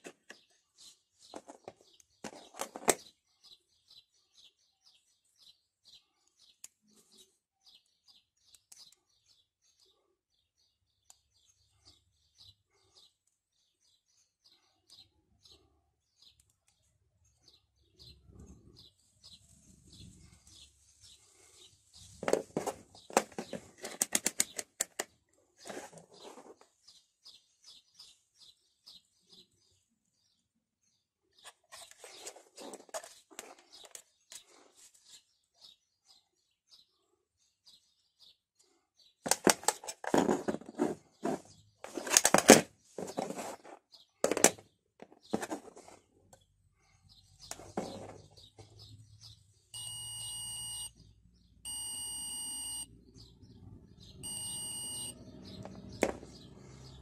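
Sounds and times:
test probes clicking and knocking: 22.2s - 25.1s, 39.3s - 40.6s, 44.2s - 45.6s
multimeter continuity beeps: 49.7s - 51.0s, 51.6s - 52.9s, 54.2s - 55.2s.

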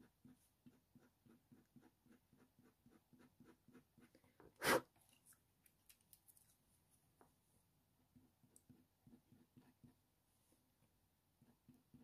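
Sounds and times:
tool scratching on paper: 0.0s - 4.2s, 8.2s - 10.0s.

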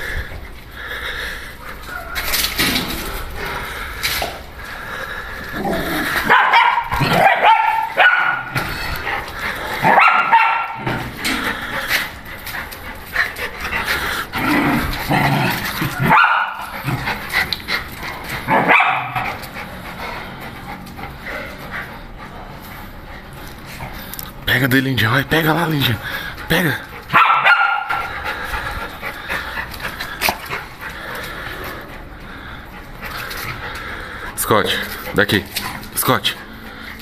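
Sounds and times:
dogs barking and yipping: 1.4s - 24.5s, 26.0s - 37.0s.

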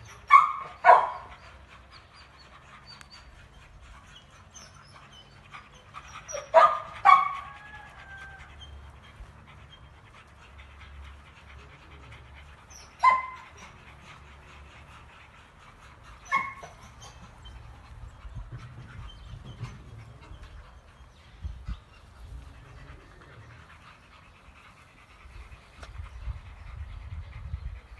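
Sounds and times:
dogs barking: 0.0s - 1.9s, 4.2s - 15.0s, 15.9s - 21.0s
dog panting: 0.0s - 27.9s.

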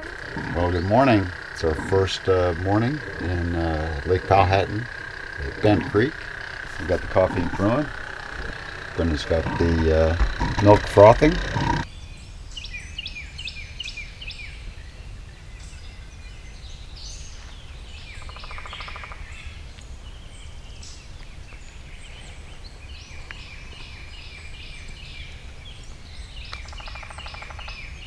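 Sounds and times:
steady low rumble: 0.0s - 11.9s
birds singing and calling: 0.0s - 28.0s.

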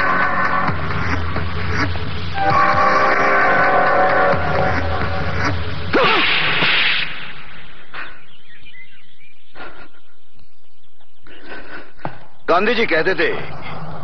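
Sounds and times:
whip-like slap crack with whoosh: 6.0s - 7.3s.

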